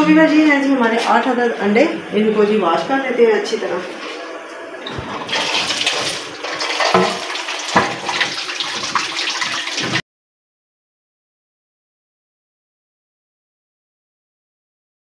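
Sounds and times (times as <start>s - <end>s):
tap water running and splashing: 0.6s - 10.0s.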